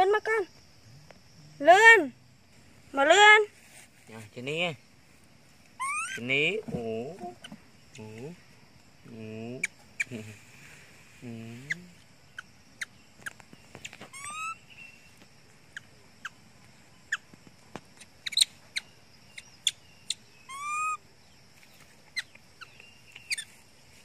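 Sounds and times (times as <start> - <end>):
monkey squeaky calls: 5.8 - 6.3, 12.4 - 14.6, 18.2 - 18.6, 19.4 - 21.0, 22.1 - 23.6.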